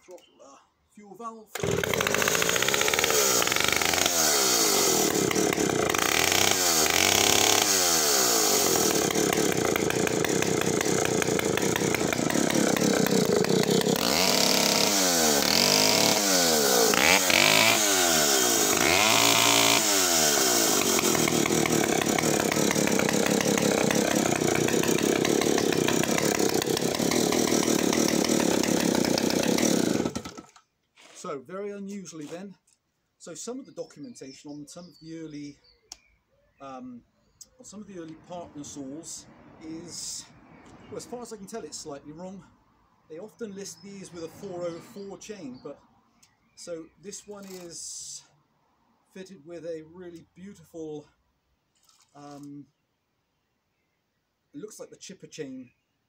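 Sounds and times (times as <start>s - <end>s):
chainsaw engine revving: 1.5s - 30.6s.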